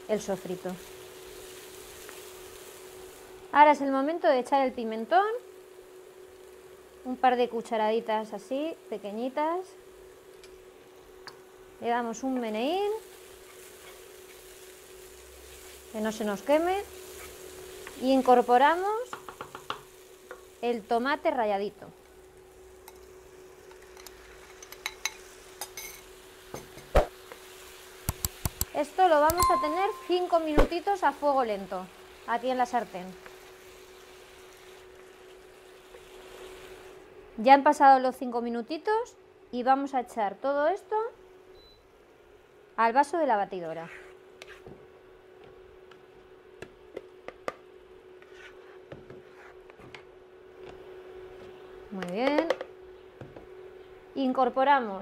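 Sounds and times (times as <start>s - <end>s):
faint sizzle: 0.0s - 55.0s
faint steady hum: 0.0s - 55.0s
faint hum: 27.6s - 55.0s
spoon clinking against glass: 29.3s - 30.2s.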